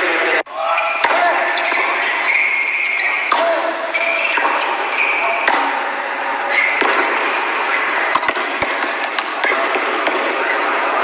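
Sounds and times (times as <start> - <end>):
shoe squeaks: 0.6 - 3.2, 3.9 - 5.5
tennis ball hitting racket: 0.9 - 5.9, 6.5 - 10.8.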